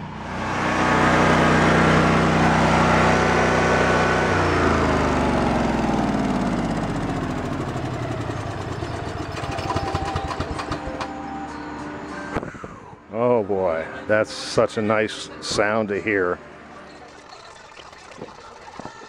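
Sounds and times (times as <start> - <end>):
generator engine running: 0.0 - 13.3.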